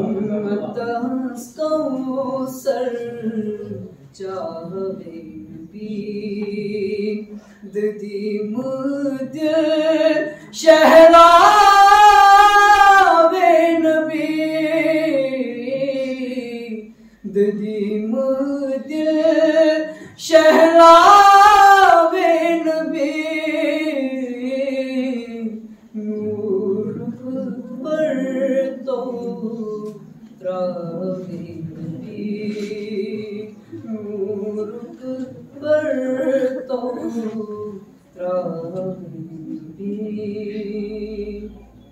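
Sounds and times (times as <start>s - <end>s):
man singing unaccompanied: 0.0s - 41.6s.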